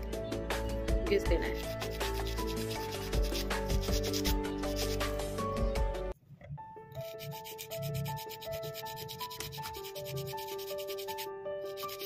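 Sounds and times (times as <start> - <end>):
nail file rasping on plastic: 1.4 - 5.1, 7.0 - 12.0.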